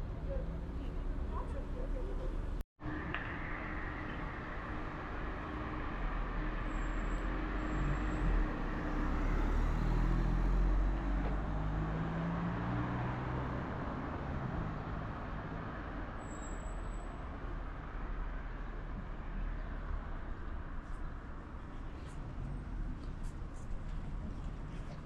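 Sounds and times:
vehicle passing by: 0:07.3 - 0:15.6.

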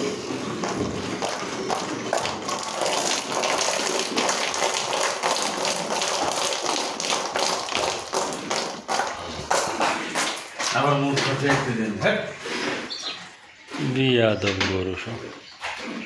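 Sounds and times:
milk squirting into steel bucket: 0:00.0 - 0:11.8.

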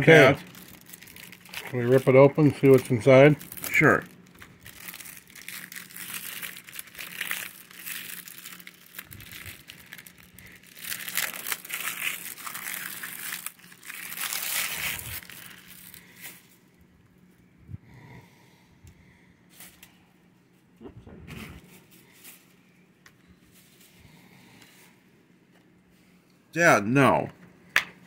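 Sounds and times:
plastic wrap tearing and crinkling: 0:00.0 - 0:16.5.

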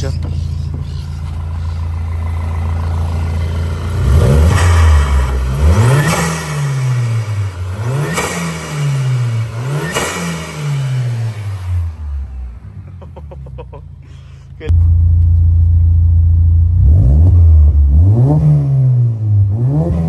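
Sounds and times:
car engine idling and revving: 0:00.0 - 0:20.0.

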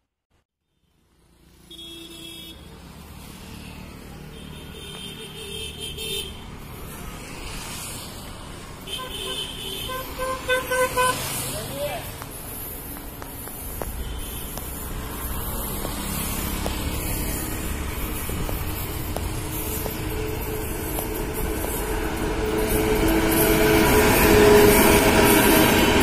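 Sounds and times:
locomotive hum: 0:04.8 - 0:26.0
train rumble: 0:09.9 - 0:26.0.

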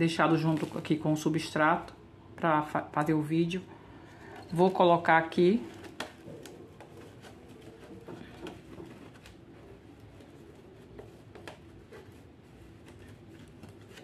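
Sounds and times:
faint rustling of fibre: 0:00.0 - 0:01.2, 0:04.0 - 0:14.0.

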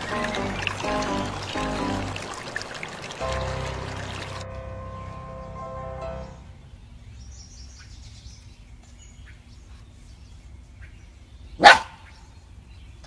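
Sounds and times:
puppy barking: 0:11.6 - 0:12.0.

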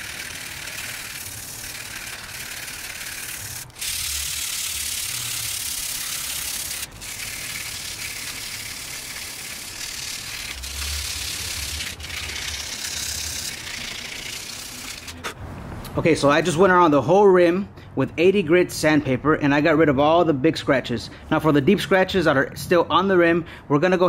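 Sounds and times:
sandpaper rasping on metal rim: 0:00.0 - 0:15.4.

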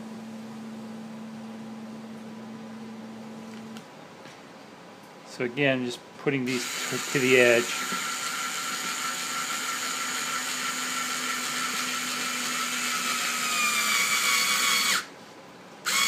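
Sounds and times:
cordless screwdriver whirring: 0:06.5 - 0:15.1.

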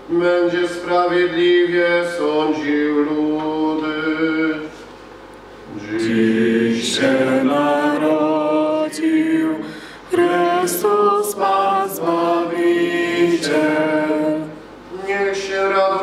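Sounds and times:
man chanting: 0:00.1 - 0:04.7, 0:14.9 - 0:16.0.

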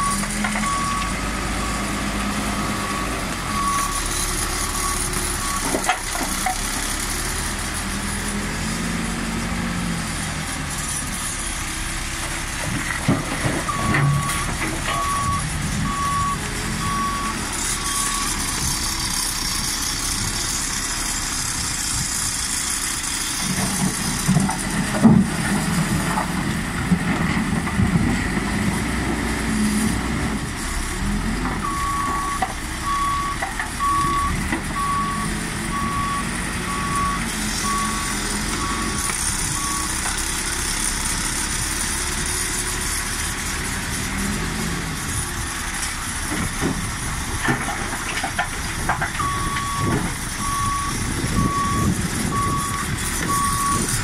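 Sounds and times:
reversing alarm beeping: 0:00.0 - 0:01.9, 0:02.6 - 0:05.7, 0:13.7 - 0:18.6, 0:31.6 - 0:40.0, 0:49.2 - 0:54.0
diesel engine running: 0:00.0 - 0:54.0.

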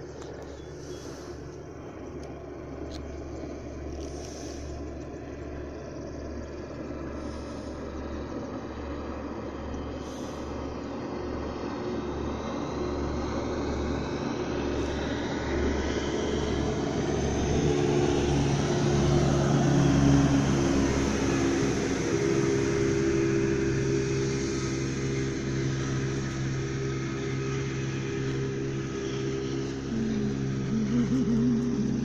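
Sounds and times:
motorboat engines droning: 0:00.0 - 0:32.0
speeding boat passing: 0:00.0 - 0:32.0.

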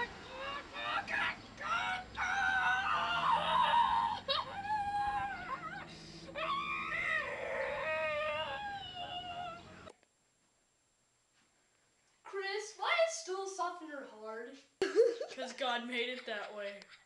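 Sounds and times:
boy wailing and whimpering: 0:00.0 - 0:09.8.

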